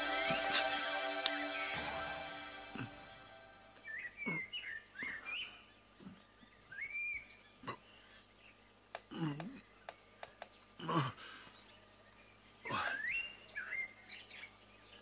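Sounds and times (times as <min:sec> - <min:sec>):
background music: 0:00.0 - 0:04.2
bird chirping: 0:00.0 - 0:08.7.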